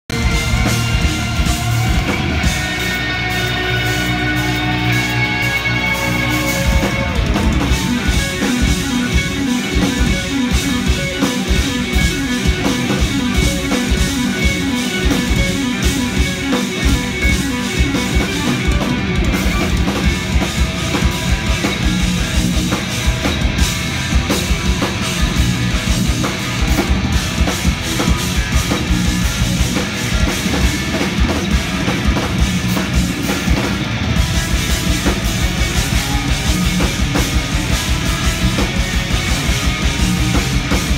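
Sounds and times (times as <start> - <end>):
electric guitar riffs: 0.1 - 40.9
fast dense drumming: 0.1 - 40.9.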